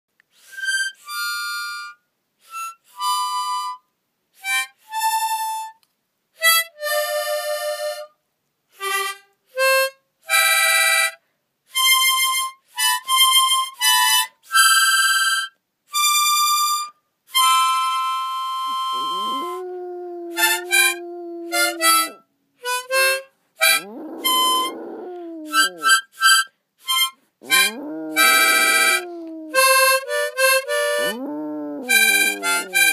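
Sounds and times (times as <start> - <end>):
harmonica playing: 17.4 - 24.8, 25.5 - 31.2, 31.9 - 32.9.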